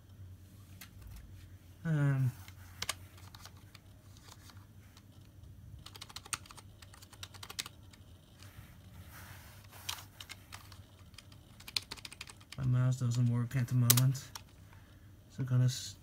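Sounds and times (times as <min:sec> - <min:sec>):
steady low hum: 0:00.0 - 0:16.0
keyboard keys clicking: 0:05.8 - 0:08.0, 0:09.9 - 0:12.6.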